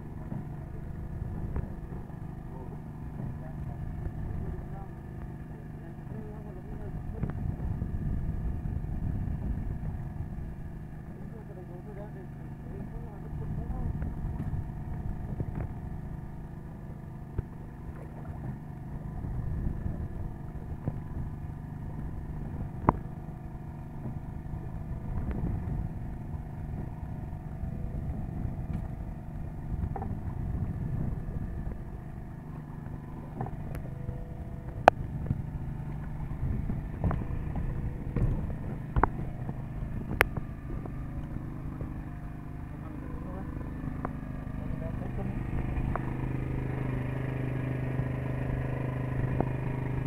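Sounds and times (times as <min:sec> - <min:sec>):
boat motor droning: 0:00.0 - 0:50.0.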